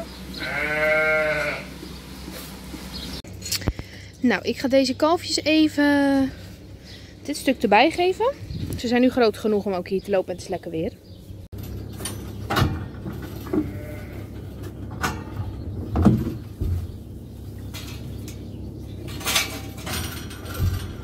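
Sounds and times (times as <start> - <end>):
calves bleating: 0.3 - 1.8, 13.5 - 14.4
metal gates knocking and rattling: 11.6 - 16.4, 17.7 - 21.0.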